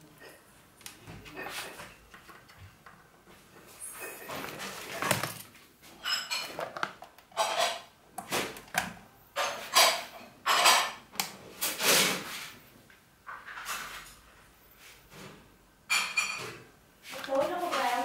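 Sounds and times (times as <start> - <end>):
knocks clatters and rustles: 1.0 - 12.4.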